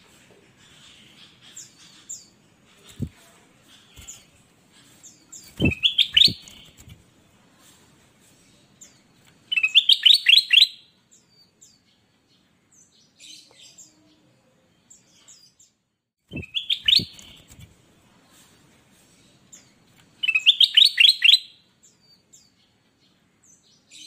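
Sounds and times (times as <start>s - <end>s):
faint bird chirps: 0.4s - 7.0s, 7.6s - 12.1s, 12.8s - 17.7s, 19.0s - 22.8s
bird singing whistled phrases: 5.6s - 6.8s, 9.5s - 10.8s, 16.3s - 17.4s, 20.2s - 21.5s.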